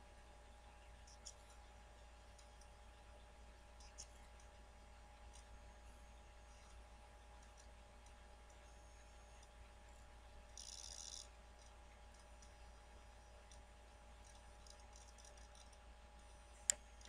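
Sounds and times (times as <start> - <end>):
soft hiss: 0.0 - 17.0
faint clicks: 0.8 - 2.8, 3.6 - 4.6, 5.2 - 5.6, 6.4 - 9.8, 10.5 - 12.6, 13.2 - 17.0.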